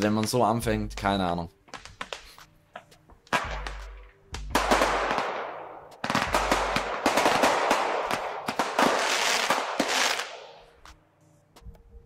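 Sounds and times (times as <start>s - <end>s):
fireworks crackling: 6.0s - 10.6s.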